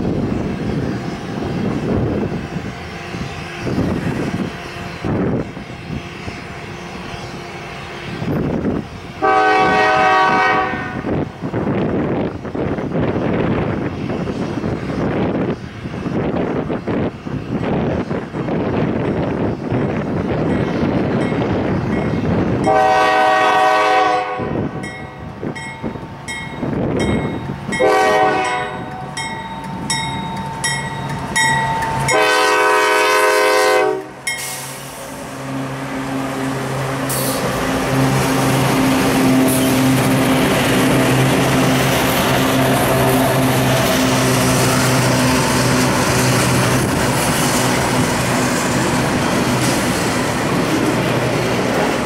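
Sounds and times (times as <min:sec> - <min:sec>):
locomotive engines humming: 0:00.0 - 0:52.0
locomotive air horn blasts: 0:09.2 - 0:11.2, 0:22.6 - 0:24.8, 0:27.8 - 0:29.1, 0:32.0 - 0:35.0
crossing bell dinging: 0:20.4 - 0:22.9, 0:24.8 - 0:32.6, 0:34.2 - 0:34.7
train wheels clacking on rails: 0:24.8 - 0:32.8, 0:33.9 - 0:52.0.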